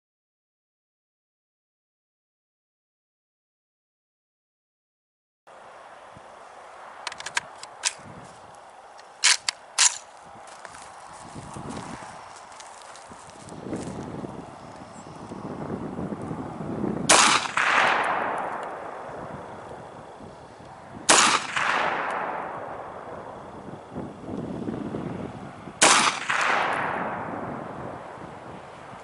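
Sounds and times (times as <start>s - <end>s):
rifle shots with echo: 17.1s - 19.6s, 21.1s - 23.4s, 25.8s - 27.8s.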